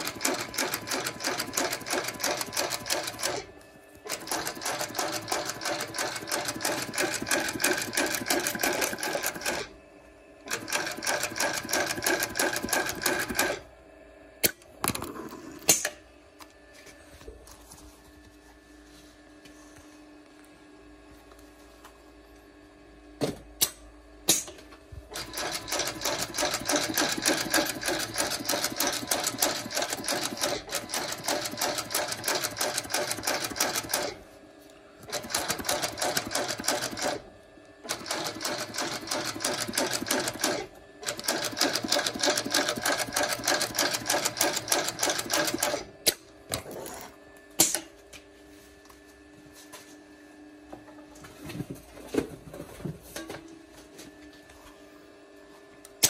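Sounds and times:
sewing machine stitching: 0.0 - 3.5, 4.1 - 9.7, 10.5 - 13.6, 25.1 - 34.2, 35.1 - 37.2, 37.9 - 45.9.

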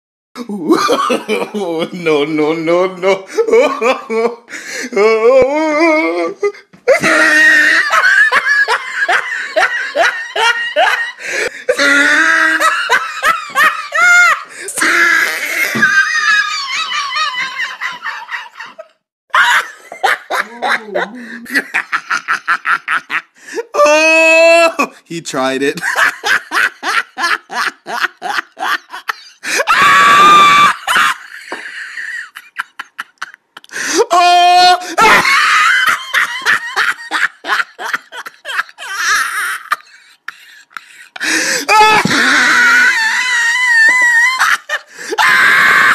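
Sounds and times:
person laughing: 0.4 - 2.2, 3.0 - 24.9, 25.8 - 45.9
high-pitched voice laughing: 19.4 - 21.8
high-pitched scream: 29.7 - 30.9.

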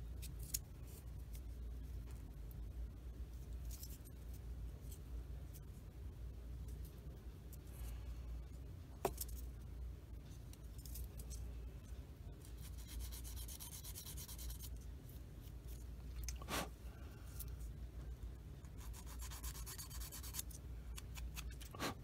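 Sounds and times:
sanding stick scratching plastic: 18.8 - 20.5.

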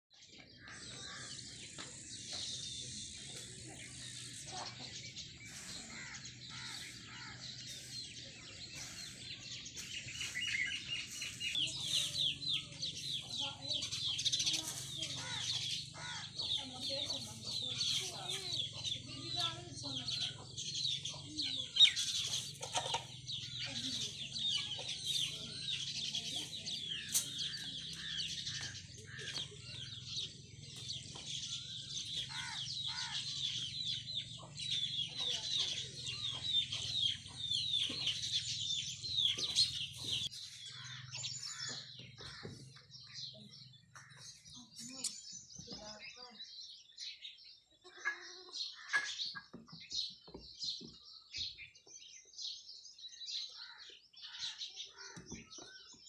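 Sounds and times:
chicks chirping: 0.8 - 43.2.

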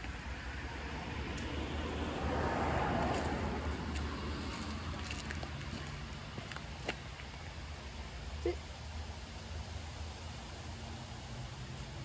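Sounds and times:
steady low rumble: 0.0 - 10.6
vehicle passing on road: 0.0 - 12.0.

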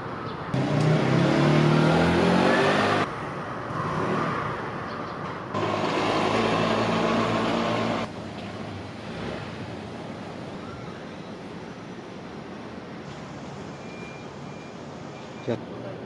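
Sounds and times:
street ambience: 0.0 - 16.0
vehicle engine running: 5.6 - 8.1.

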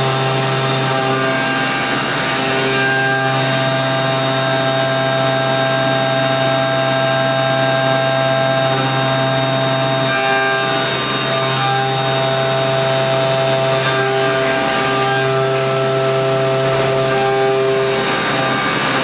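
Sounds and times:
milling machine whine: 0.0 - 19.0.

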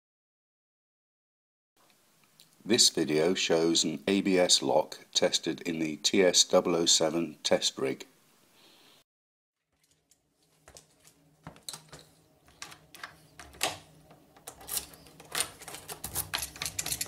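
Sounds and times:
locking pliers clicking on lock: 14.4 - 17.0.

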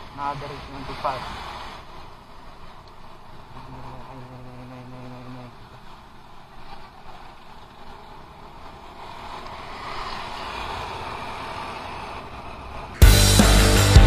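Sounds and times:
passing traffic: 0.0 - 14.0
scooter engine: 0.0 - 14.0
loud rock music: 13.0 - 14.0.

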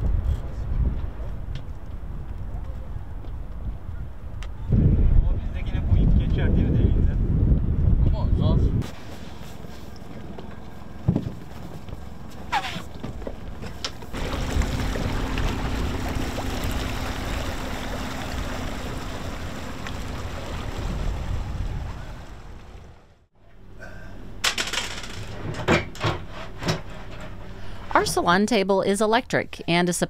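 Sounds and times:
outboard motor running: 8.9 - 24.5
water churning: 14.0 - 23.3.

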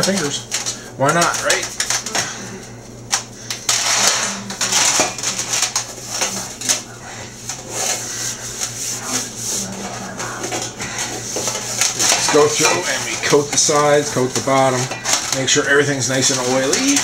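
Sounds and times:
fingers rubbing metal pan: 5.7 - 14.5.

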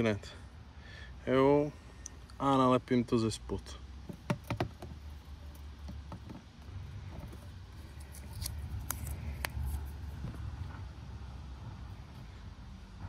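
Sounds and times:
adhesive pad peeling: 7.8 - 9.9.

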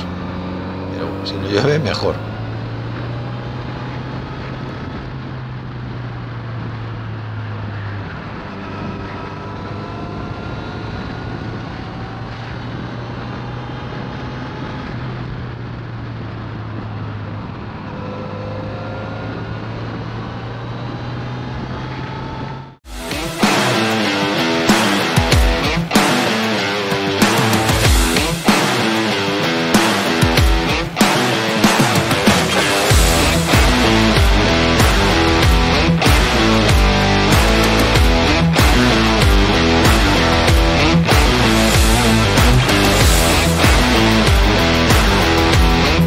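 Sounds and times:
motorcycle engine cruising: 0.0 - 46.0
wind and road noise: 0.0 - 46.0.

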